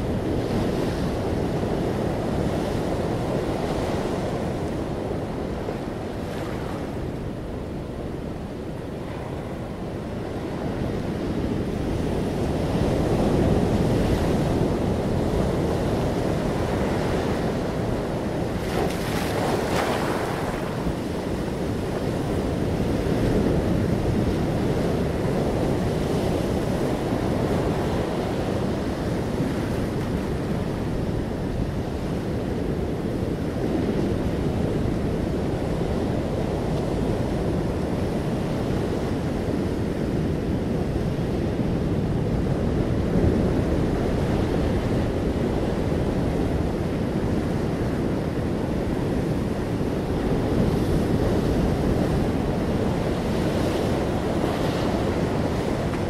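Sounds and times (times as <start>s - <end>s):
ocean surf breaking: 8.9s - 31.9s, 43.6s - 56.0s.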